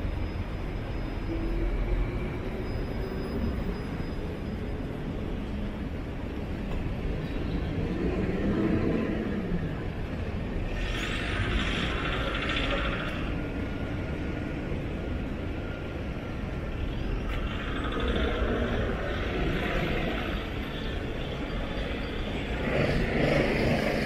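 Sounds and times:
traffic engines rumbling: 0.0s - 24.0s.

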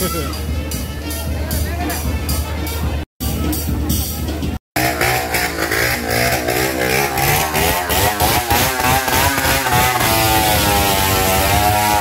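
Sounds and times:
motorcycle engines revving: 4.8s - 12.0s.

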